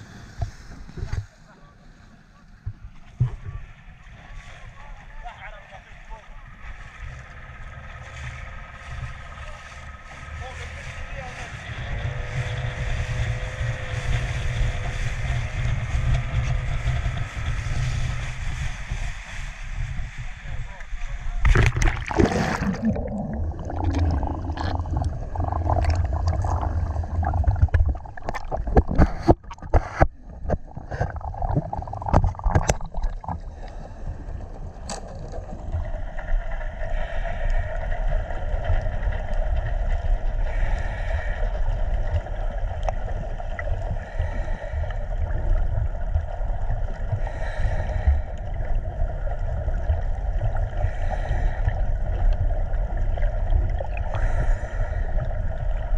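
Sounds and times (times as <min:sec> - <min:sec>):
underwater low rumble: 0:00.0 - 0:55.9
knocks and splashes: 0:21.4 - 0:33.5.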